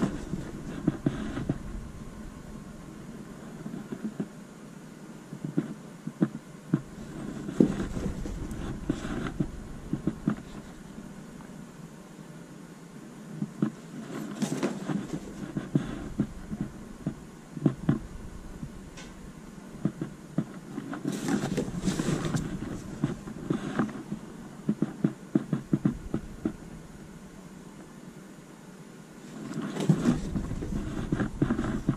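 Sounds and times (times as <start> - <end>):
caps rustling when handled: 6.8 - 11.0, 13.8 - 16.8, 20.7 - 24.3, 29.2 - 31.9.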